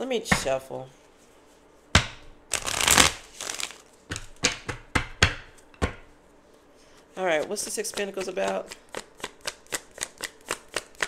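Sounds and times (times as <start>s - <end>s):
cards riffling: 2.5s - 4.3s
cards tapping: 2.6s - 4.8s.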